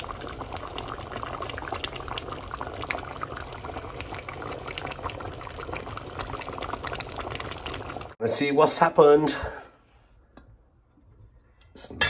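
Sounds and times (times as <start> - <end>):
curry bubbling and popping: 0.0 - 8.2.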